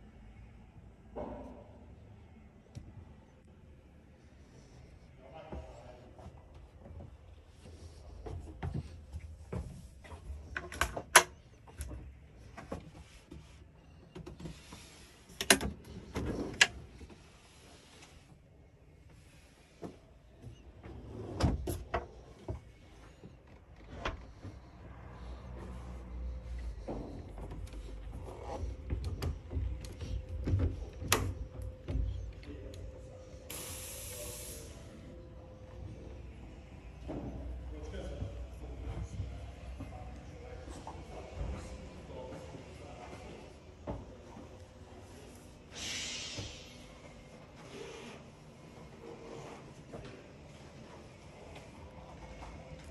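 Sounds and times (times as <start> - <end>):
steady hiss: 33.5 - 34.9.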